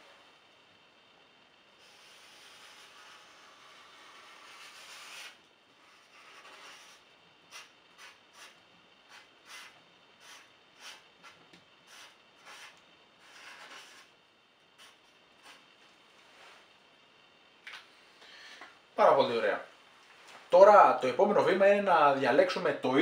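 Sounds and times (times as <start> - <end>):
marker drawing on paper: 1.8 - 14.1, 14.8 - 15.7.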